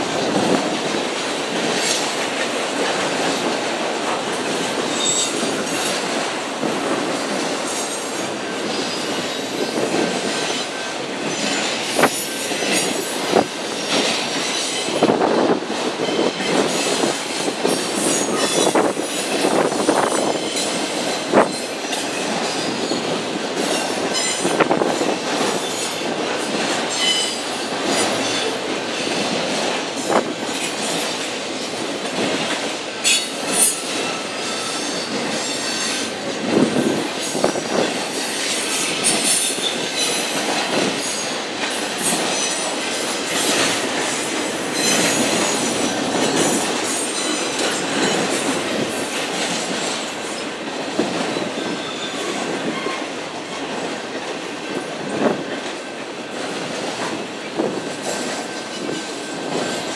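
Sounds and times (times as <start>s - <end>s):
train cars clanking: 0.0s - 59.9s
train wheels rumbling on rail: 0.0s - 59.9s.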